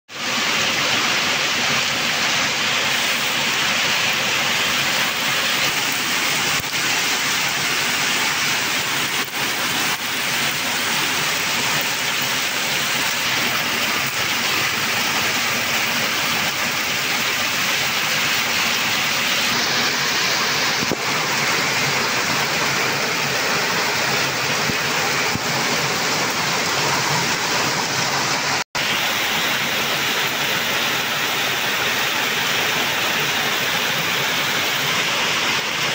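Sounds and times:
heavy rain pattering on road: 0:02.8 - 0:28.6.

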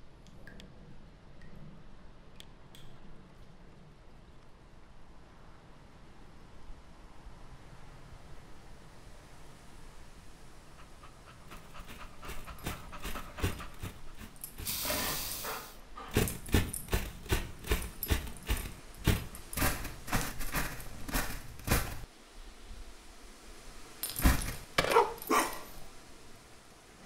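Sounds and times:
dog panting: 0:10.7 - 0:22.0.

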